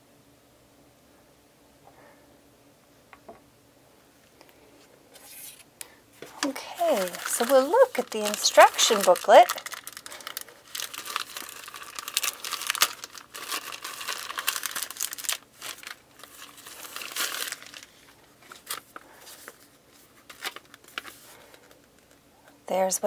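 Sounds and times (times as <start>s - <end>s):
plastic bag crinkling: 6.3s - 22.3s.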